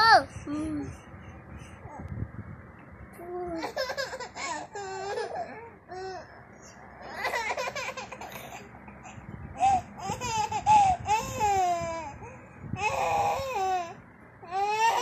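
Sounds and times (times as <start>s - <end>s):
toddler laughing: 3.6s - 6.3s, 7.0s - 8.7s, 9.6s - 12.2s.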